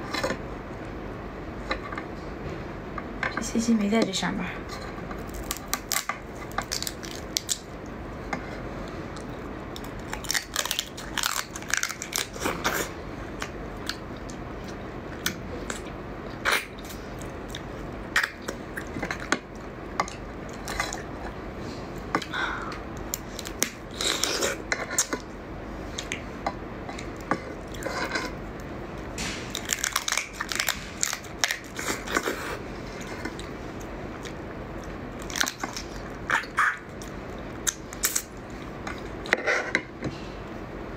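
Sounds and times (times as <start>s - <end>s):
crab shell crunching: 5.2s - 7.8s, 9.2s - 14.0s, 29.2s - 32.3s.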